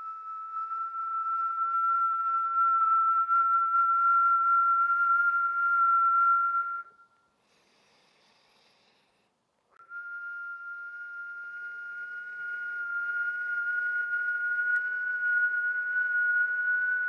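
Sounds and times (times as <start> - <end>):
woman exhaling with whistling tone: 6.8 - 9.2
faint inhale through nose: 7.4 - 9.4.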